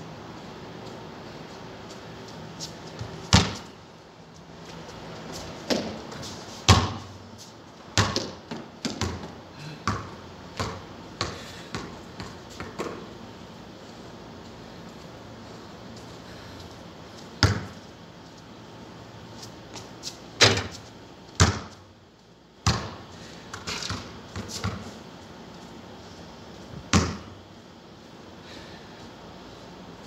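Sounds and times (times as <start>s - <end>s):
basketball bouncing on concrete: 3.0s - 3.8s, 5.6s - 7.2s, 7.9s - 13.1s, 17.4s - 17.9s, 19.7s - 20.8s, 21.4s - 21.9s, 22.6s - 25.0s, 26.9s - 27.4s
basketball hitting backboard: 3.3s - 3.7s, 6.7s - 7.1s, 8.0s - 9.3s, 17.4s - 17.7s, 20.4s - 20.7s, 21.4s - 21.8s, 22.6s - 23.0s, 26.9s - 27.3s.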